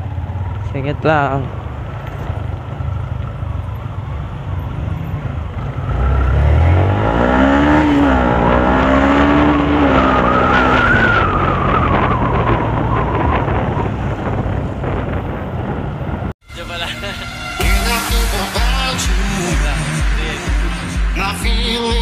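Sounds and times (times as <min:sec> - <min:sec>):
motorcycle engine accelerating: 0:00.0 - 0:16.4, 0:17.1 - 0:22.0
road and wind rumble: 0:00.0 - 0:22.0.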